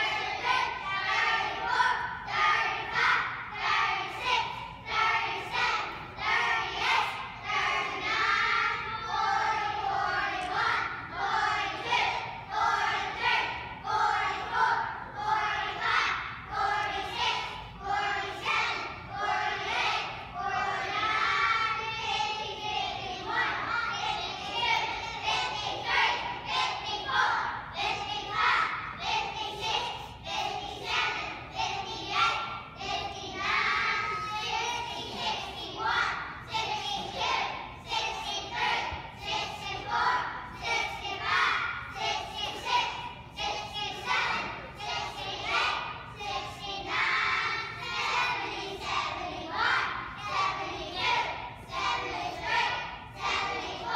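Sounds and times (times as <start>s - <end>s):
children counting aloud in chant: 0.0s - 53.9s.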